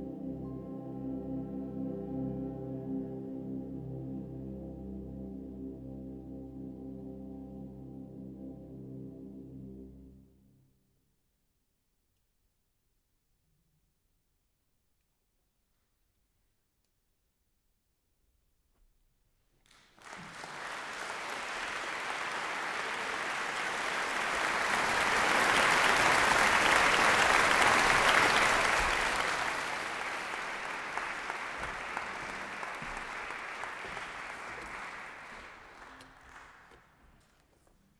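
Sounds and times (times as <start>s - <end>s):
audience applauding: 19.7s - 37.0s.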